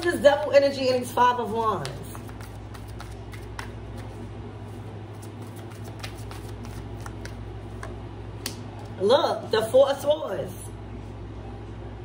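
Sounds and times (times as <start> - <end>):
steady low hum: 0.0 - 12.0
cards shuffling and clicking: 1.5 - 4.2, 5.1 - 8.9.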